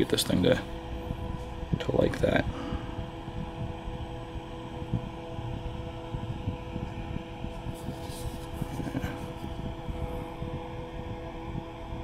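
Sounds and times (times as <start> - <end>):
electrical hum: 0.0 - 12.0
handling noise on microphone: 7.5 - 9.7.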